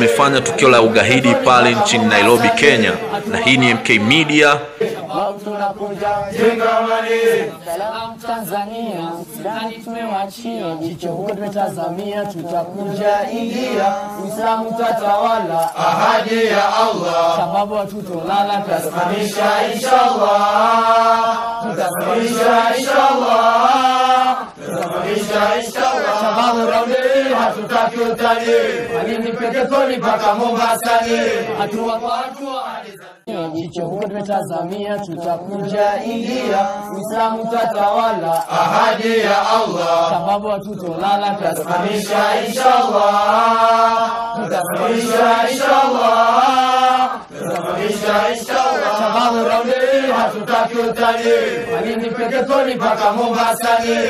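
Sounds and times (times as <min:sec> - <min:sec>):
man chanting: 0:00.0 - 0:05.6
men chanting a song: 0:00.0 - 0:54.0.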